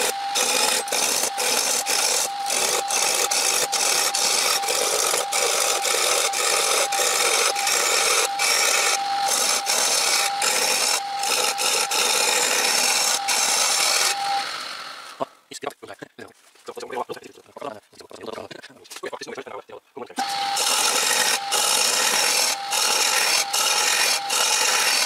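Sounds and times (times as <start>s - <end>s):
chisel scraping spinning wood: 0.0s - 15.2s, 20.2s - 25.0s
lathe whine: 0.0s - 15.3s, 20.2s - 25.0s.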